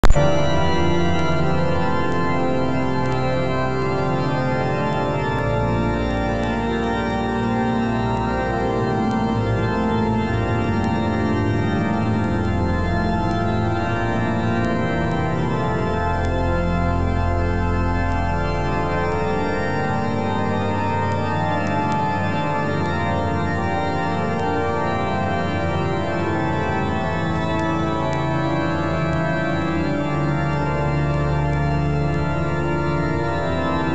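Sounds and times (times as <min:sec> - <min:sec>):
organ playing sustained chords: 0:00.0 - 0:33.9.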